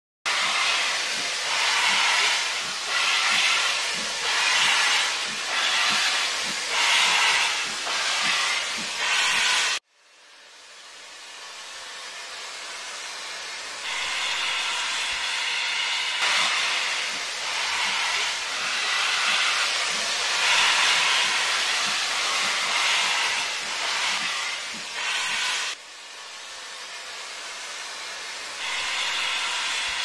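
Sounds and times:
steam hissing: 0.3 - 30.0
steam locomotive chuffing: 0.3 - 30.0.

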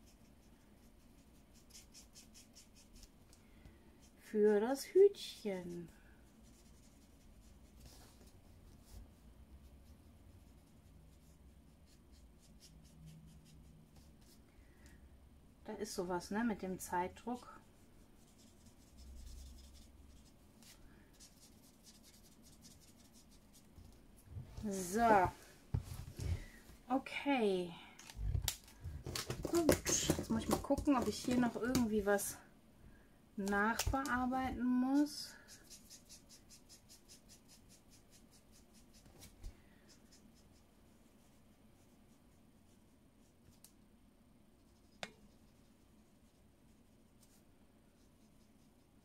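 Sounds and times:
marker scratching on paper: 0.0 - 3.1, 34.9 - 39.3.

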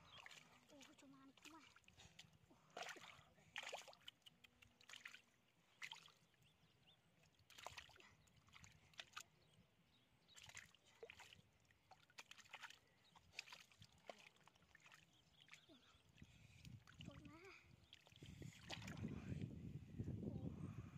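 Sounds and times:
hands sloshing in mud: 0.0 - 6.2, 7.4 - 9.3, 10.3 - 16.0, 16.6 - 19.2.

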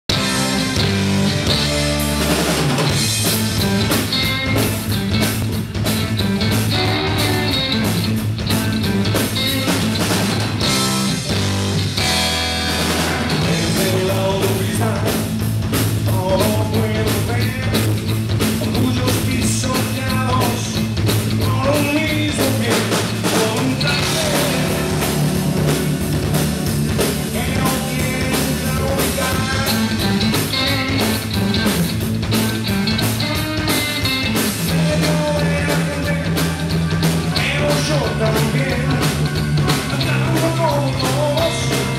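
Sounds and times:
live rock band playing: 0.0 - 41.9
lead vocal singing: 13.1 - 15.4, 16.0 - 17.8, 18.6 - 25.8, 26.6 - 30.4, 34.7 - 41.9.

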